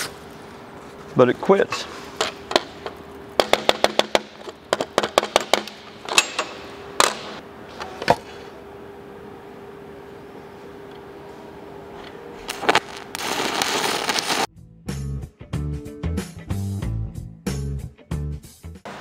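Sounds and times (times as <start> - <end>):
faint steady hum: 4.2 - 14.4
electrode scratching on metal plate: 12.5 - 14.5
welding arc clicks and crackles: 12.5 - 14.5.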